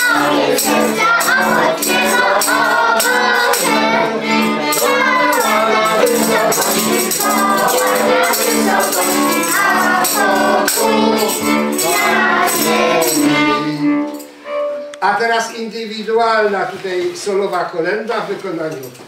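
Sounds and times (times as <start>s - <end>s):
shaken percussion beat: 0.0s - 13.6s
children and adults singing: 0.0s - 14.2s
violin: 0.0s - 15.6s.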